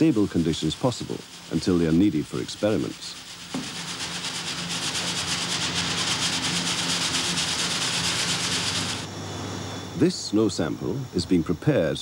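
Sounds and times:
snow rasping through sieve mesh: 0:00.0 - 0:09.1.

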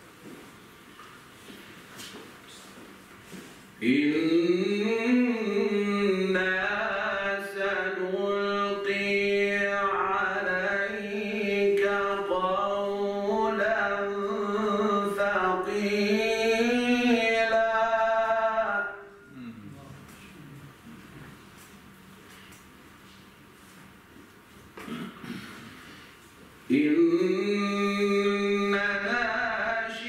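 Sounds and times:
man chanting: 0:03.8 - 0:20.1, 0:26.7 - 0:30.0.

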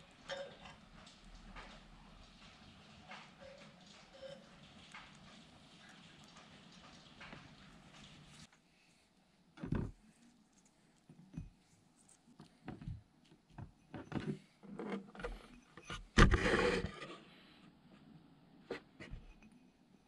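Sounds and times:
knocks and scrapes in porcelain bowl: 0:13.9 - 0:17.3.

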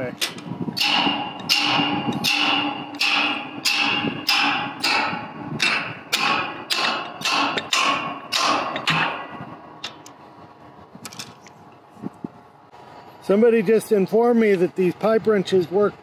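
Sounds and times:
pipe wrench clanking on steel: 0:00.2 - 0:10.1.

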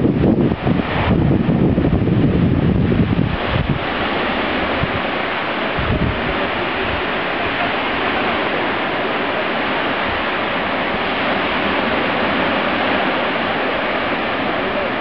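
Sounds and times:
surf breaking on beach: 0:00.0 - 0:15.0.

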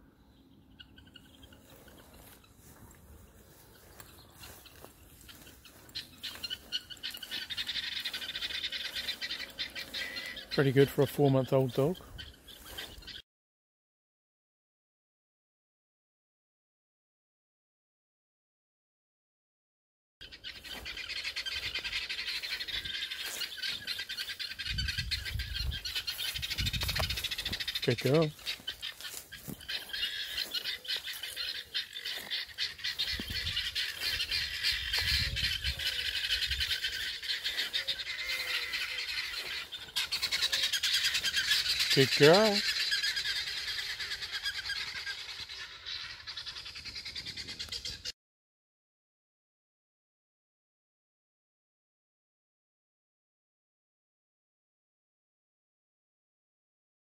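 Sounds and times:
guinea fowl rattling chatter: 0:00.6 - 0:13.2, 0:20.2 - 0:48.1.

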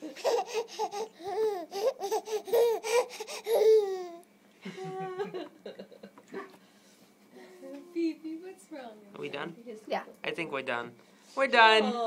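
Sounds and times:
baby laughing: 0:00.0 - 0:04.2
baby squealing: 0:00.2 - 0:04.2.

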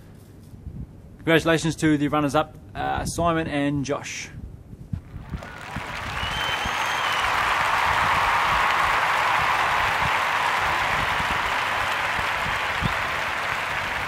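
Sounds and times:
audience applause: 0:05.1 - 0:14.0.

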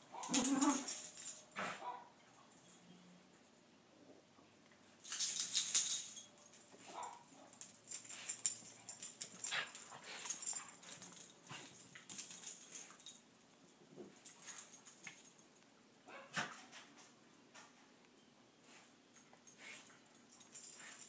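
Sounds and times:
small dog noises: 0:00.0 - 0:01.0.

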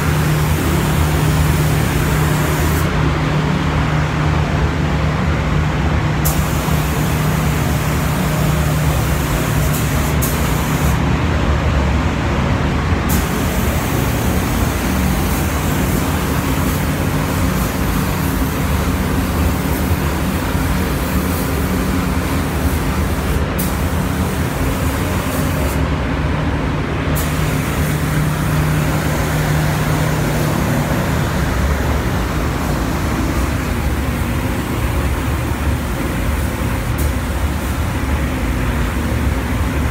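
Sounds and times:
paint spray gun hissing: 0:00.0 - 0:02.9, 0:06.3 - 0:11.0, 0:13.1 - 0:25.8, 0:27.2 - 0:37.9
low hum and rush of air: 0:00.0 - 0:39.9.

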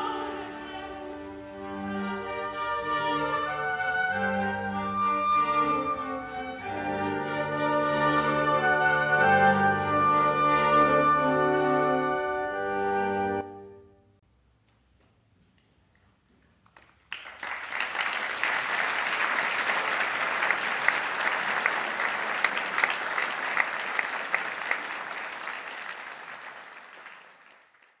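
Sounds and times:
audience applauding: 0:16.6 - 0:28.0.

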